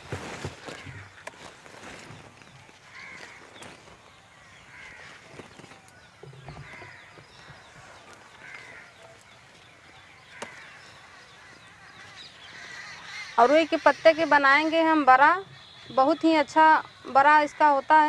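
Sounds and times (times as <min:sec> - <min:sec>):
crow cawing: 0:00.6 - 0:01.6, 0:02.8 - 0:03.7, 0:04.3 - 0:05.4, 0:06.4 - 0:09.2, 0:10.0 - 0:18.0.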